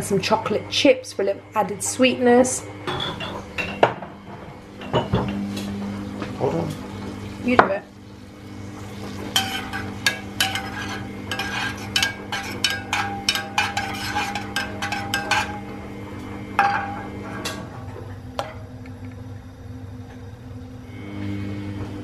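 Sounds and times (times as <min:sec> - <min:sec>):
steady low hum: 0:00.0 - 0:22.0
water swirling in a pan: 0:05.8 - 0:18.1
metal spoon tapping a saucepan: 0:09.4 - 0:15.6.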